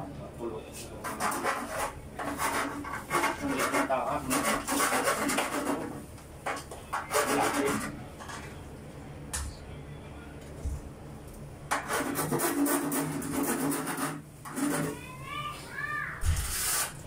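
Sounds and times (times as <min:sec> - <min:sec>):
rubbing and scraping: 0:01.0 - 0:06.0, 0:07.0 - 0:08.0, 0:11.7 - 0:15.0, 0:16.2 - 0:17.0.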